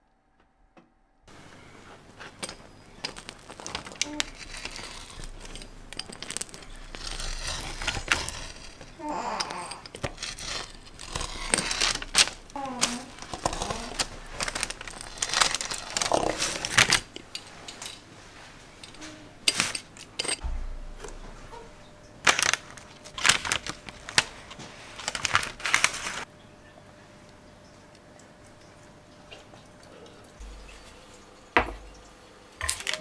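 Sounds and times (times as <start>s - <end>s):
crinkling and rustling packaging: 1.3s - 26.3s, 32.6s - 33.0s.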